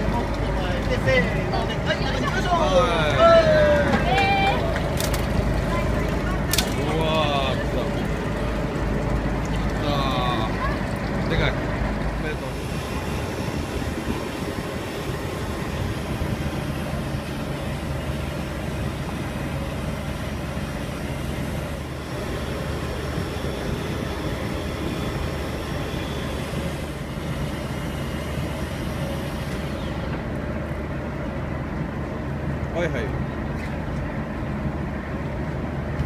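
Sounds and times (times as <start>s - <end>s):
boat engine droning: 0.0s - 36.0s
water noise: 0.0s - 36.0s
wind noise: 12.5s - 17.2s.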